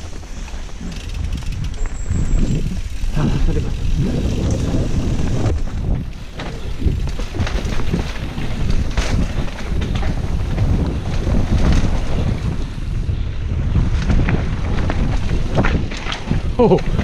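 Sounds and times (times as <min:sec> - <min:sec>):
bike knocks and rattles: 0:00.0 - 0:17.0
wind buffeting microphone: 0:00.0 - 0:17.0.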